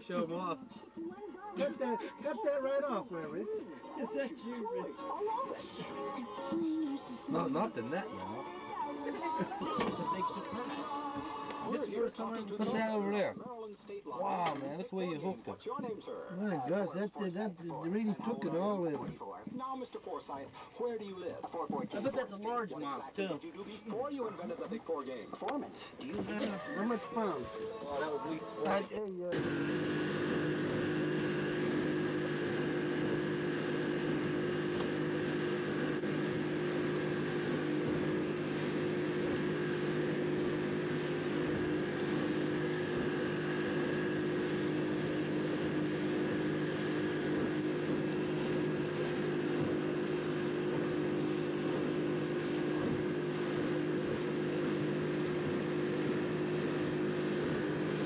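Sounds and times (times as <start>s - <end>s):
motorboat engine drone: 28.6s - 58.0s
water rushing in wake: 29.4s - 58.0s.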